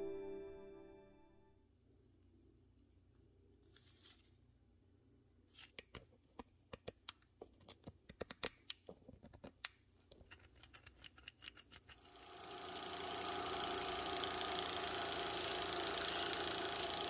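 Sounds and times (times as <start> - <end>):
belt grinder motor running: 12.0 - 17.0.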